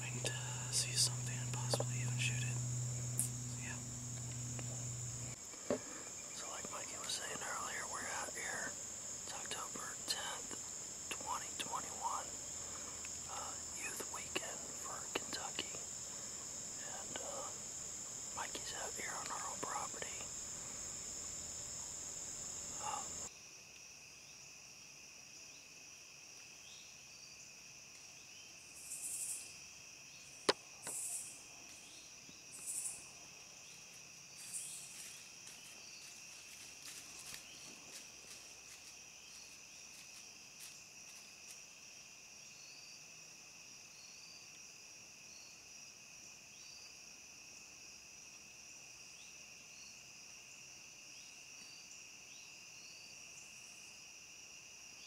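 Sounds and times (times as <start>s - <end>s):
high-pitched insect chorus: 0.0s - 26.0s, 26.6s - 55.0s.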